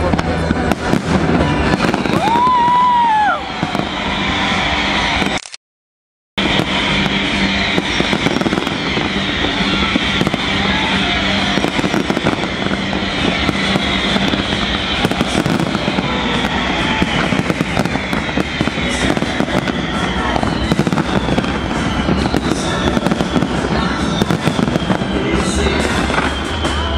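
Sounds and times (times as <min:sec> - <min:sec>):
fireworks crackling and banging: 0:00.0 - 0:05.4, 0:06.4 - 0:26.9
music playing: 0:00.0 - 0:05.4, 0:06.4 - 0:26.9.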